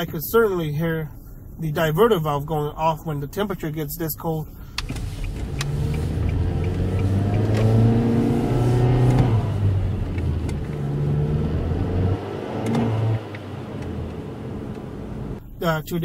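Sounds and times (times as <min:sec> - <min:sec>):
car engine accelerating: 0:04.8 - 0:15.4.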